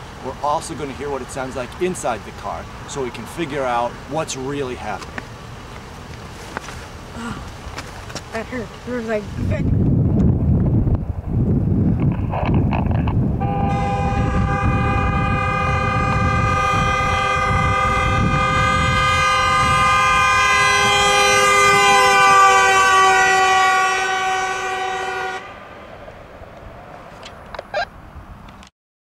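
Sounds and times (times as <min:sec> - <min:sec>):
low rumble: 0:09.4 - 0:18.6
car horn held down: 0:13.4 - 0:19.2.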